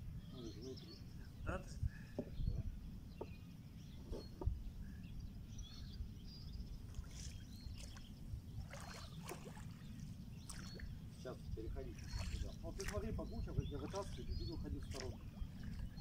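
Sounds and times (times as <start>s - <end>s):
oars splashing: 6.9s - 16.0s.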